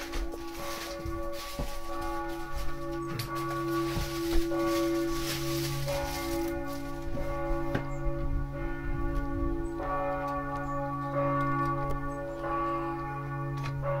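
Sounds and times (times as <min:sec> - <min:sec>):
church bell ringing: 0:00.0 - 0:14.0.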